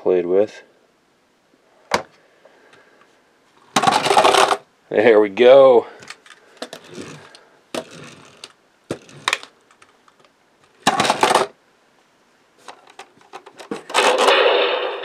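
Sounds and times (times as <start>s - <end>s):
plastic toy clicks and rattles: 3.8s - 4.6s, 6.1s - 11.5s
toy plastic rasp: 6.6s - 9.5s.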